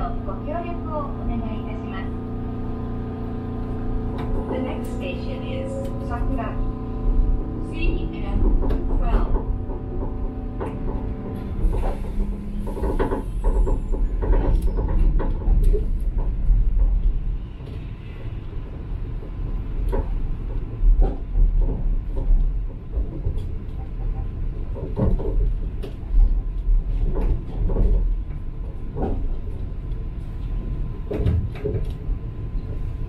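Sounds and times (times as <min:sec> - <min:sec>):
monorail car rumbling: 0:00.0 - 0:33.0
knocks and clunks: 0:04.0 - 0:17.9, 0:19.0 - 0:29.6, 0:30.5 - 0:32.2.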